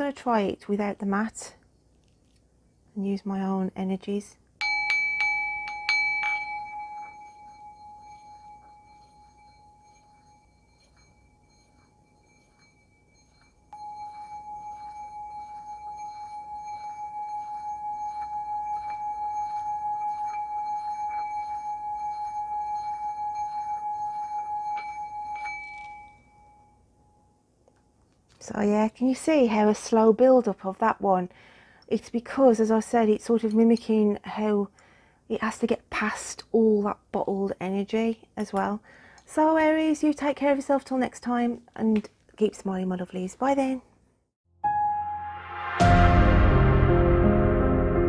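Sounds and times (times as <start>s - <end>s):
singing bowl rim rubbed tone: 4.6s - 26.9s
singing bowl struck and ringing: 4.6s - 27.2s.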